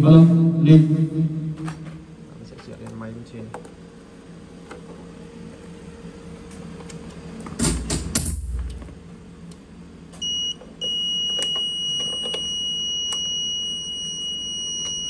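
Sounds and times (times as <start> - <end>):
high steady buzzer beep: 10.2 - 15.0.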